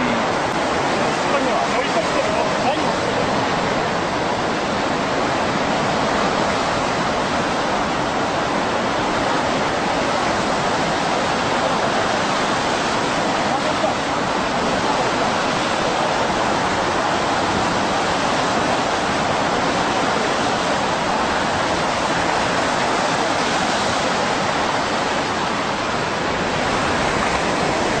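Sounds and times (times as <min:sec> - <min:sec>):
ocean waves breaking: 0:00.0 - 0:28.0.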